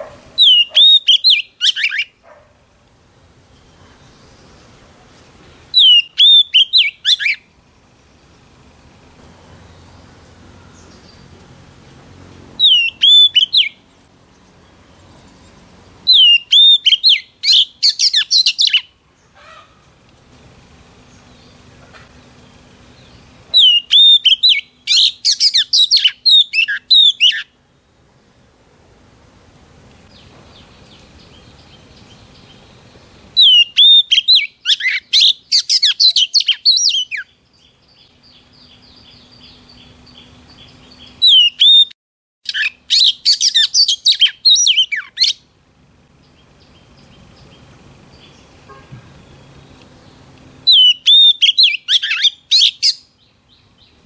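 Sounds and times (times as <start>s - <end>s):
bird singing whistles and chatter: 0.4s - 2.2s, 5.7s - 7.4s, 12.6s - 13.8s, 16.1s - 18.9s, 23.5s - 27.5s, 33.4s - 37.3s, 41.1s - 41.9s, 42.5s - 45.4s, 50.7s - 53.1s.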